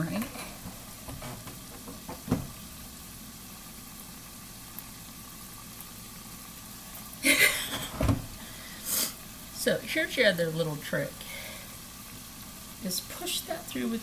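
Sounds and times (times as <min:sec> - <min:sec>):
food sizzling in a pan: 0:00.0 - 0:14.0
knock: 0:01.1 - 0:02.5
thump: 0:01.1 - 0:02.5, 0:07.9 - 0:08.3.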